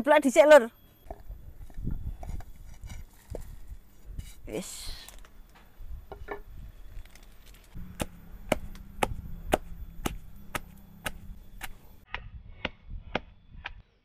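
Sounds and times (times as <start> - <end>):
pestle pounding in a mortar: 7.8 - 11.8.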